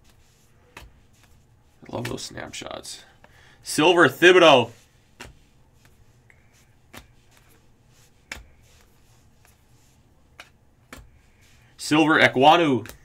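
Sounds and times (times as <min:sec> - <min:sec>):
cards rustling: 0:00.0 - 0:13.0.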